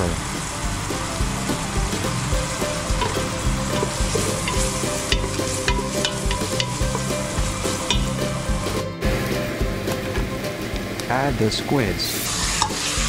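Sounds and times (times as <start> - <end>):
onions sizzling in hot oil: 0.0 - 11.0, 12.2 - 13.0
wooden spoon scraping pot: 1.6 - 8.4.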